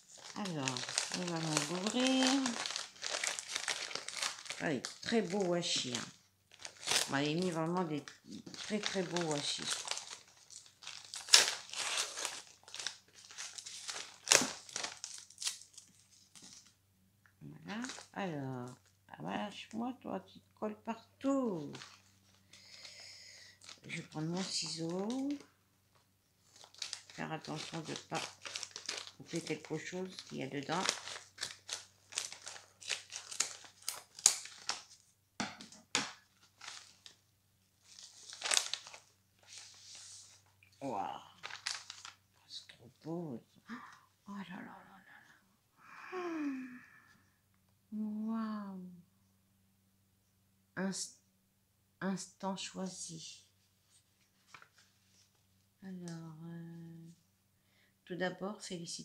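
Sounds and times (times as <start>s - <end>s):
paper envelope tearing: 0.0s - 7.6s, 8.4s - 16.7s, 26.5s - 35.0s, 37.8s - 40.4s, 41.4s - 42.2s.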